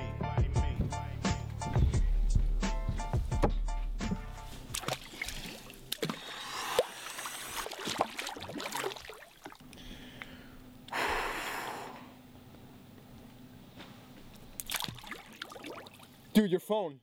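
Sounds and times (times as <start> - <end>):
water sloshing in hot tub: 4.7 - 10.3, 14.2 - 16.4
person sighing: 9.8 - 12.2.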